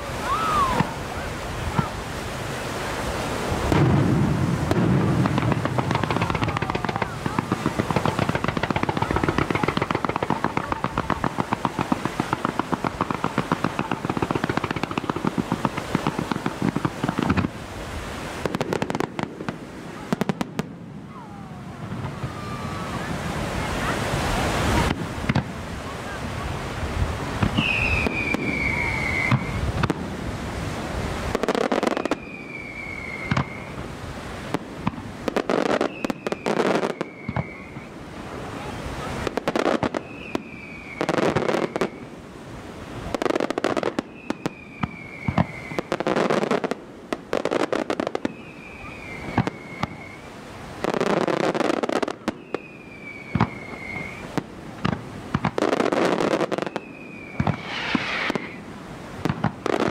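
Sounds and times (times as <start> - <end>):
firework bangs and crackling: 0.0 - 59.9
firework whistle falling in pitch: 0.2 - 1.0, 27.5 - 29.7, 31.9 - 33.8, 35.6 - 38.0, 44.1 - 46.0, 48.2 - 50.3, 52.3 - 54.3, 56.5 - 58.6.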